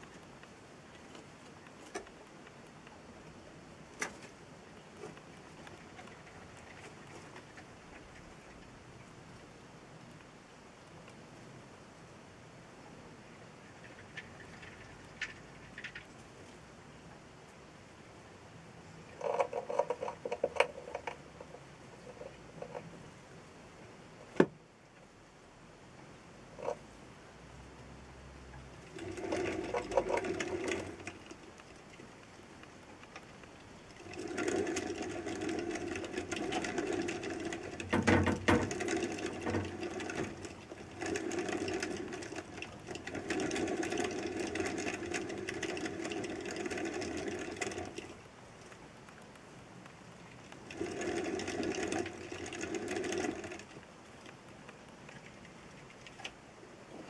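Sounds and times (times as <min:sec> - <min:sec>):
exercise wheel whirring: 0:28.8 - 0:48.8, 0:50.4 - 0:57.0.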